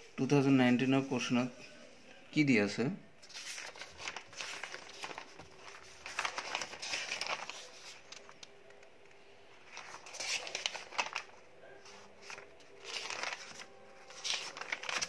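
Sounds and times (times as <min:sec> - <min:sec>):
paper sheets rustling: 0:03.2 - 0:08.8, 0:09.6 - 0:15.0.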